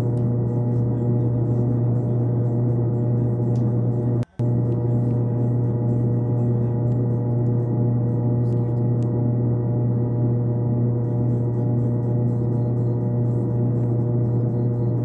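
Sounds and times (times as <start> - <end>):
low drone of held tones: 0.0 - 15.0.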